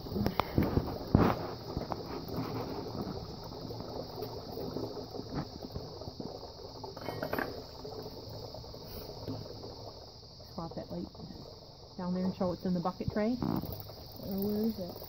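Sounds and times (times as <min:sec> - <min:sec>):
oil pouring into bucket: 0:00.0 - 0:15.0.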